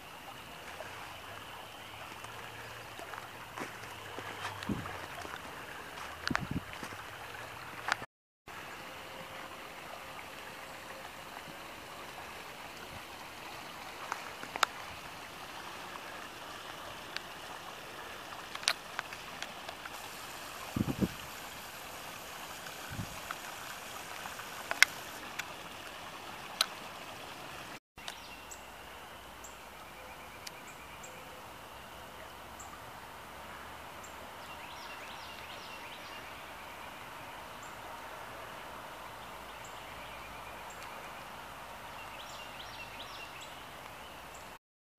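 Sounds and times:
creek running: 0.0 - 44.6
sharp snaps and crackles: 22.6 - 25.5.

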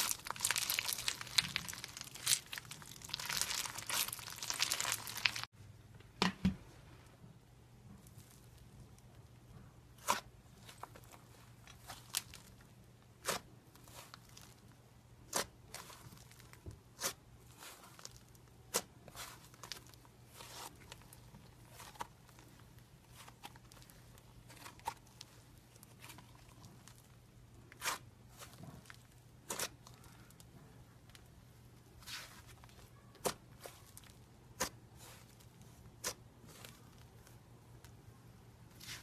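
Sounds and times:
faint continuous crackle: 0.0 - 5.5
slime squishing and popping: 0.0 - 5.5.

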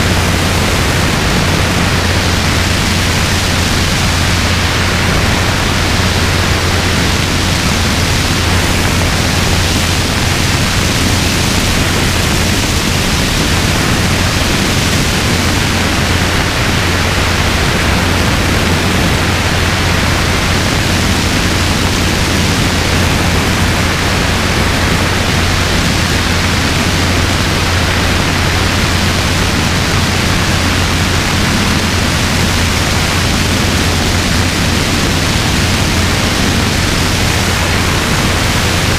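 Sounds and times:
helicopter rotor and airflow noise: 0.0 - 38.9
low hum: 0.0 - 38.9.

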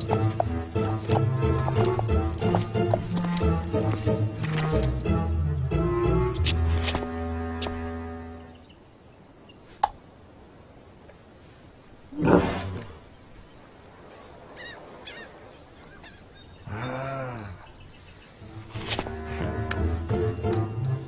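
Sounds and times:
music: 0.0 - 8.6, 18.4 - 21.0
faint chirps: 11.4 - 18.5.

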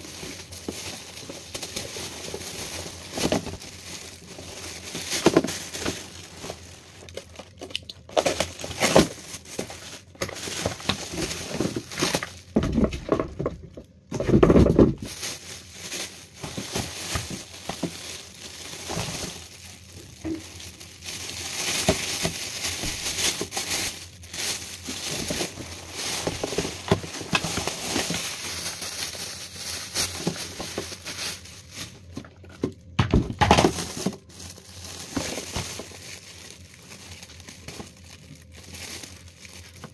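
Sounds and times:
plastic bags crinkling: 0.0 - 39.9.

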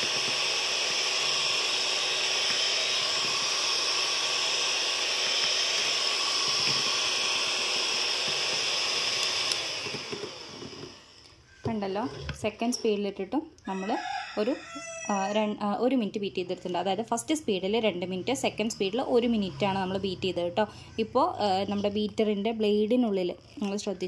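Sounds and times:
electric hand mixer whirring: 0.0 - 13.1.

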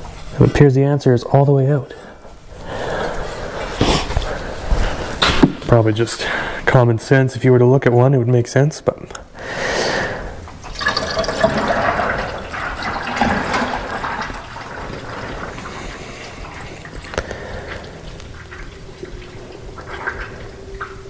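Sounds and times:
coolant pouring and gurgling: 10.5 - 21.0.

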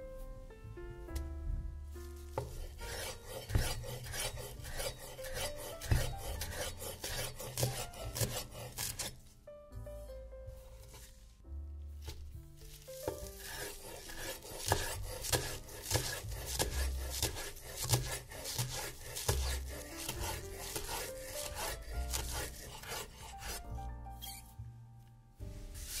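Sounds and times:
soft background music: 0.0 - 26.0
food rasping on a grater: 2.2 - 9.3, 12.0 - 23.6.

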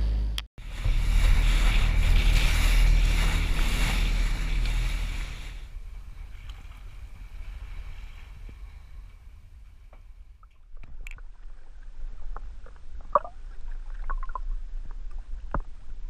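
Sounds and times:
rushing water: 0.6 - 9.0.

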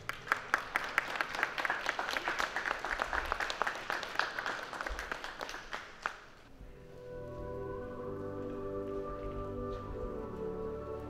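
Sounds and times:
spectators applauding: 0.0 - 6.4.

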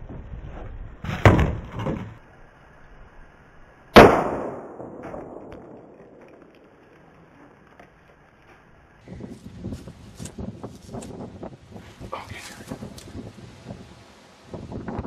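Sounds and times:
sharp bangs echoing: 4.0 - 6.5.

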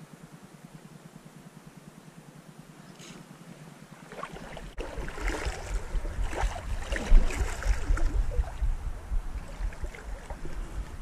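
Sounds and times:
creek water splashing: 3.8 - 11.0
wind rumble on microphone: 4.0 - 11.0.

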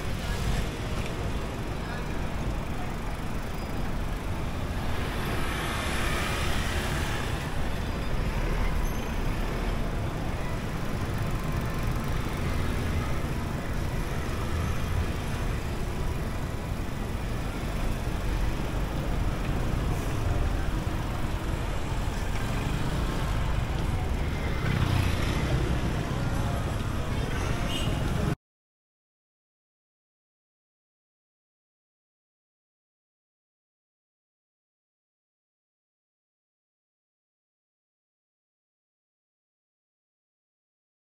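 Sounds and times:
traffic rumble: 0.0 - 28.4.

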